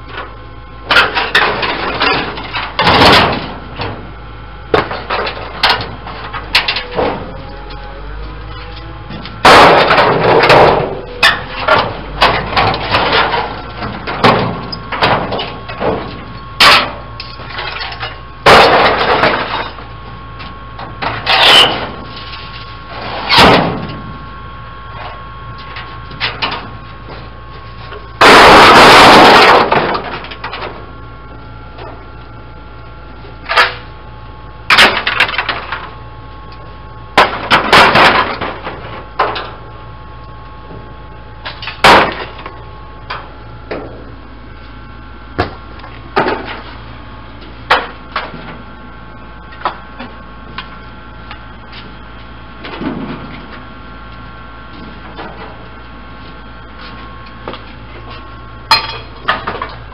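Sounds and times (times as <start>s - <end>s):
metal panels clanking and crashing: 0.9s - 4.0s, 4.7s - 7.4s, 8.5s - 19.8s, 20.8s - 24.0s, 28.2s - 30.8s, 37.2s - 39.6s.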